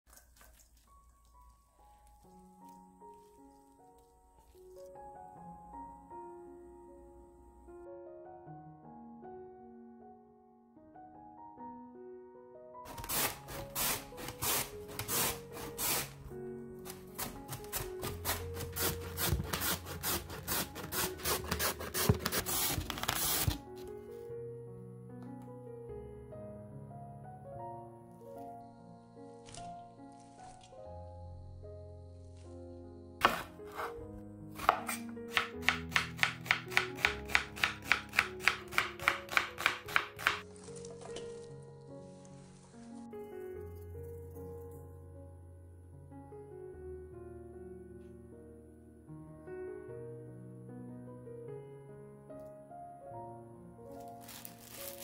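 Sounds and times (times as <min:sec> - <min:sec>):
soft background music: 0:00.1 - 0:55.0
radish rasping on mandoline slicer: 0:12.9 - 0:16.2, 0:16.9 - 0:23.6, 0:33.2 - 0:34.0, 0:34.6 - 0:40.4.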